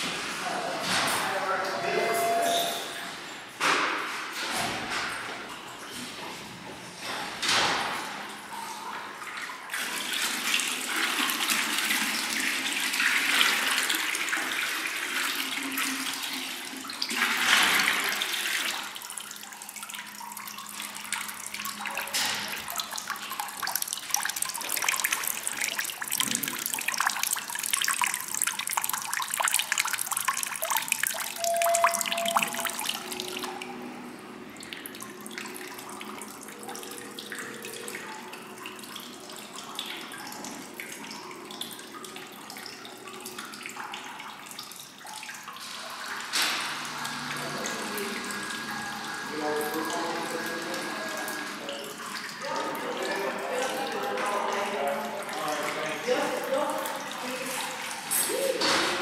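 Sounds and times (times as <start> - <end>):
water pouring from jug: 9.2 - 34.0
fountain spouts trickling: 18.0 - 33.5.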